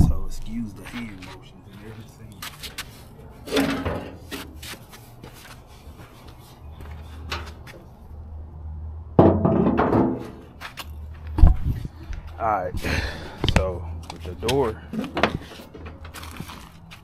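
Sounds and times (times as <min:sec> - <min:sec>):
low steady hum: 0:00.0 - 0:02.4
heavy clunk: 0:03.5 - 0:04.4, 0:09.2 - 0:10.5.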